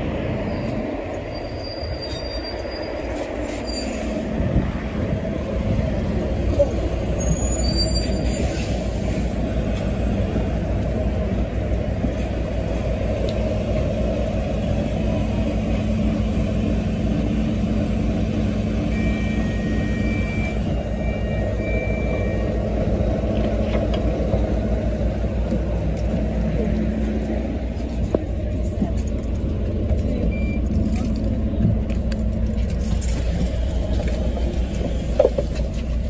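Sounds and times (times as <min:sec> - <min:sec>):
bus diesel engine idling: 0:00.0 - 0:36.0.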